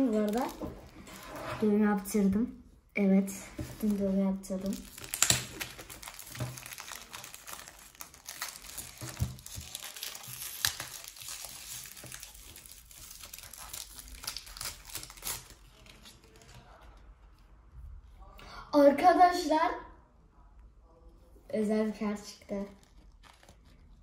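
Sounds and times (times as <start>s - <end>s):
wrapper crinkling and tearing: 0.0s - 1.2s, 3.6s - 16.9s, 22.6s - 24.0s.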